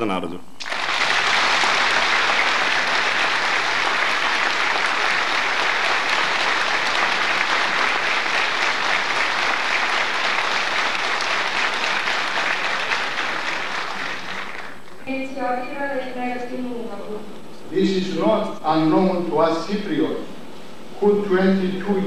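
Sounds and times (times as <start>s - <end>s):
audience applauding: 0.6s - 15.0s.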